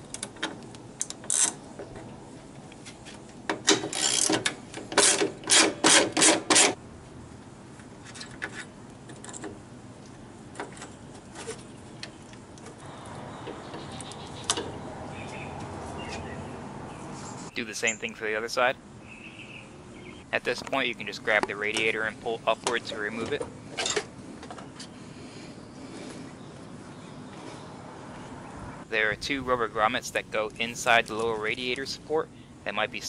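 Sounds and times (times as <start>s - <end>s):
ratchet wrench clicking: 3.9s - 4.4s.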